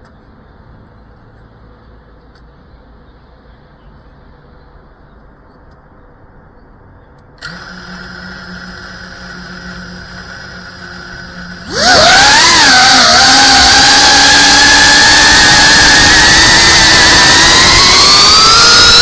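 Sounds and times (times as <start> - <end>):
drone motors whining: 7.4 - 19.0.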